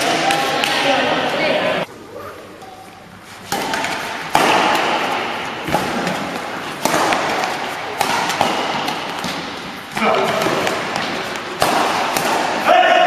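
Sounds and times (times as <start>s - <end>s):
racket hitting shuttlecock: 3.4s - 13.0s.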